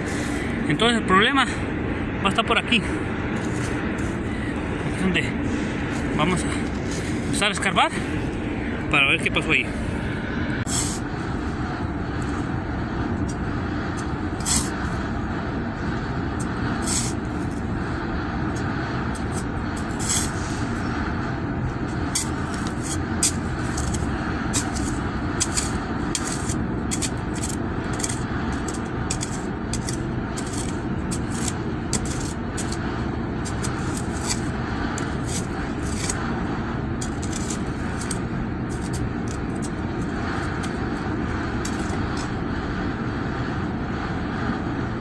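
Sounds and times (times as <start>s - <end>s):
shovel scraping into soil: 0.0s - 0.5s, 3.4s - 4.4s, 5.9s - 7.7s, 10.6s - 11.2s, 14.0s - 15.0s, 16.8s - 17.6s, 19.1s - 20.6s, 22.1s - 32.8s, 33.4s - 36.2s, 37.0s - 40.8s, 41.6s - 42.3s
road traffic: 0.0s - 45.0s.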